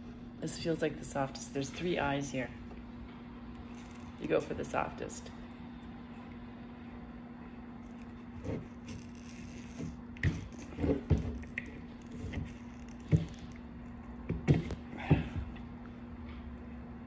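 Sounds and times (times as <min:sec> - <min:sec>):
metal tool scraping coconut: 0:03.6 - 0:04.7, 0:07.8 - 0:13.6.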